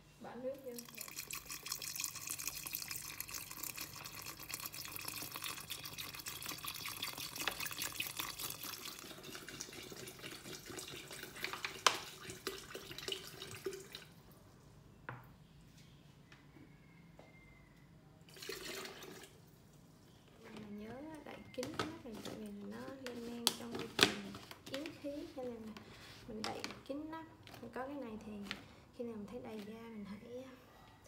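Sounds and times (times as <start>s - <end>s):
water pouring into plastic jar: 0.6s - 14.2s, 18.3s - 19.4s.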